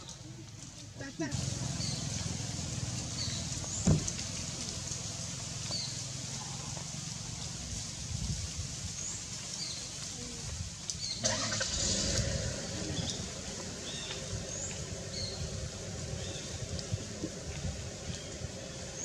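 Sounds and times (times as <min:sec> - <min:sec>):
low steady rumble: 0:00.1 - 0:09.2, 0:10.3 - 0:19.0
small birds chirping: 0:01.3 - 0:07.6, 0:08.8 - 0:11.2, 0:12.6 - 0:19.0.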